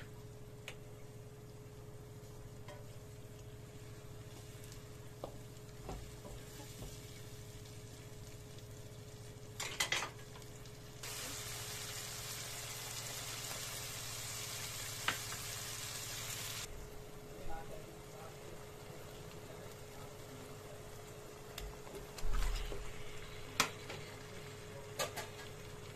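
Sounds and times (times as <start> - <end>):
loud frying sizzle: 0.0 - 25.9
onion frying in a pan: 0.0 - 25.9
wooden spatula knocking on pan: 5.2 - 7.0.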